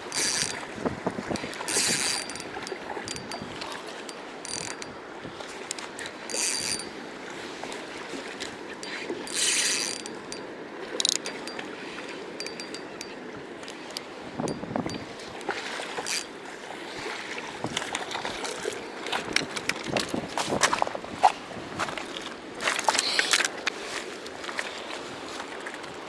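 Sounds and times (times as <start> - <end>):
fishing reel gears whirring: 0.0 - 7.0, 8.2 - 16.4.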